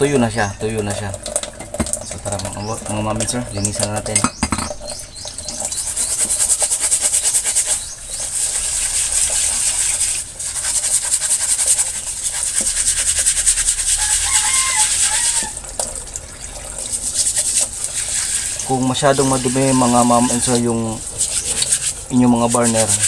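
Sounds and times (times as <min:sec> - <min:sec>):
running tap water: 0:00.0 - 0:23.0
steel brush scrubbing metal: 0:03.5 - 0:15.6, 0:16.8 - 0:23.0.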